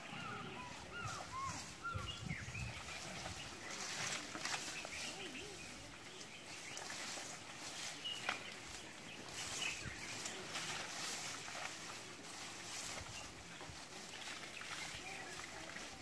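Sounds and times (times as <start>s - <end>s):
birds chirping: 0.0s - 16.0s
outdoor ambience: 0.0s - 16.0s.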